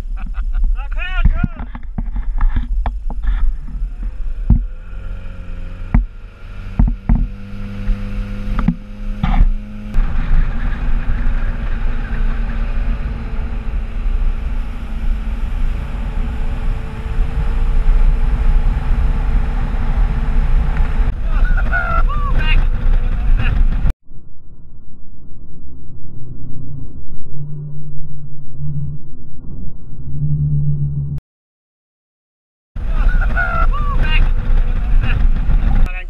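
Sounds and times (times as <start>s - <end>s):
speedboat engine: 0.0s - 23.9s, 32.8s - 36.0s
wind and water noise: 0.0s - 23.9s
sharp knocks: 4.4s - 4.8s, 5.8s - 9.6s.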